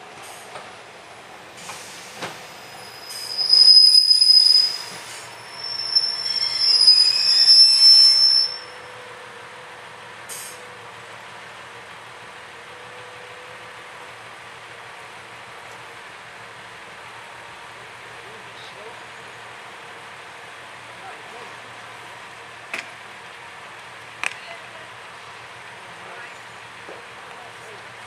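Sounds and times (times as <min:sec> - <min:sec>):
train wheels squealing: 0:01.6 - 0:09.3.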